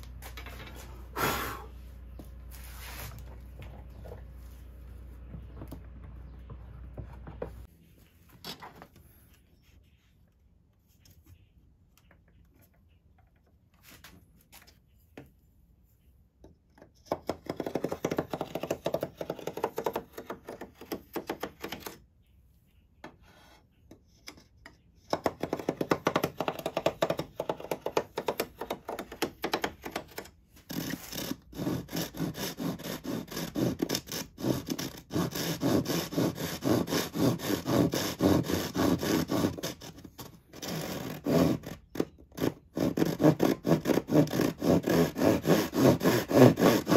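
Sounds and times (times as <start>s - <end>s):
handsaw cutting wood strips: 25.2s - 46.9s.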